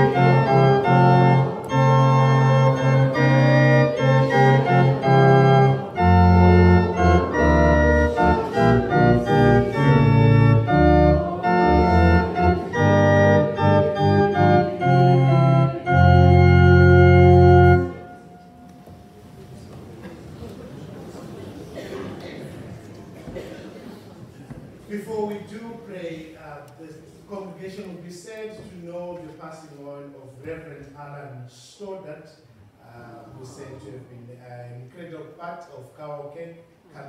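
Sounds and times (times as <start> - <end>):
church organ chords: 0.0 - 18.9.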